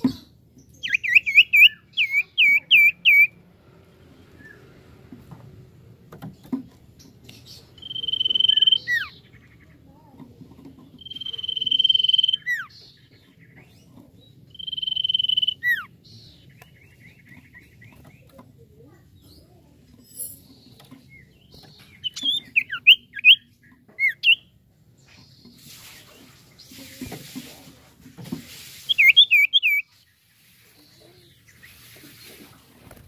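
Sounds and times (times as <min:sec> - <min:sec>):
bird whistling song: 0:00.7 - 0:03.4, 0:04.4 - 0:04.7, 0:07.5 - 0:09.3, 0:11.0 - 0:12.8, 0:14.5 - 0:15.9, 0:21.2 - 0:24.5, 0:28.8 - 0:29.9.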